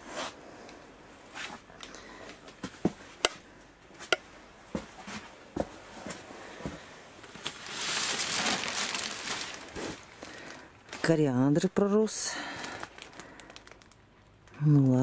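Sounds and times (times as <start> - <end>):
plastic film rustling: 7.2 - 11.6, 12.4 - 14.1.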